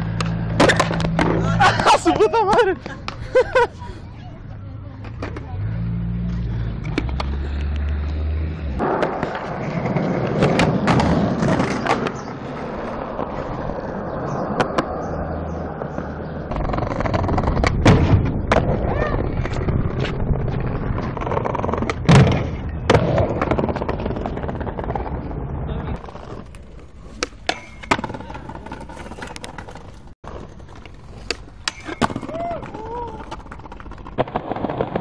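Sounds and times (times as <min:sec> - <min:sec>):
skateboard trucks grinding ledge: 0:00.0 - 0:03.2, 0:05.0 - 0:35.0
skateboards rolling on concrete: 0:00.0 - 0:35.0
skateboard tail pops and landings: 0:00.1 - 0:01.4, 0:08.8 - 0:12.2, 0:17.0 - 0:19.7, 0:21.2 - 0:24.7, 0:31.2 - 0:35.0
loud skateboard impact: 0:00.1 - 0:01.9, 0:08.8 - 0:12.2, 0:16.5 - 0:20.1, 0:21.7 - 0:24.9.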